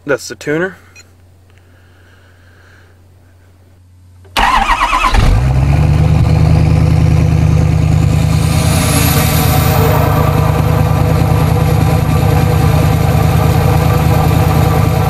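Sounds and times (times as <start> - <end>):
diesel engine idling: 4.4 - 15.0
high whine: 5.2 - 15.0.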